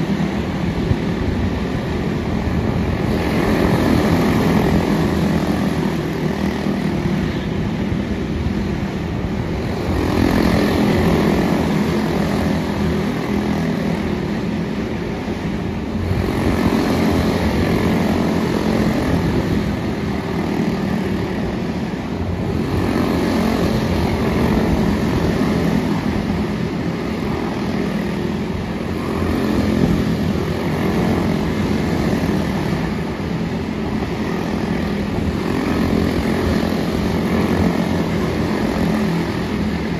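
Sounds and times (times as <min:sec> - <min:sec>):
race car engines buzzing: 0:00.0 - 0:39.9.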